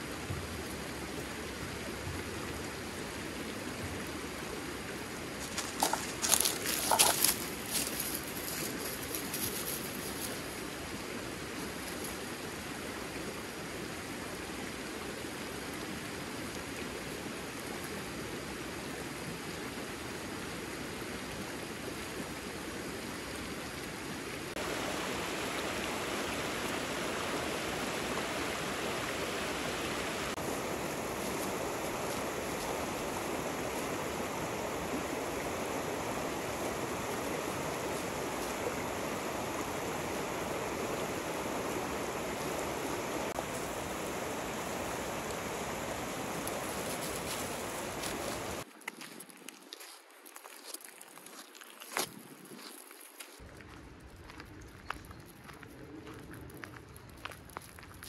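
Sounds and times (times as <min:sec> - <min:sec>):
creek rushing over rocks: 0:00.0 - 0:13.9, 0:24.4 - 0:48.7.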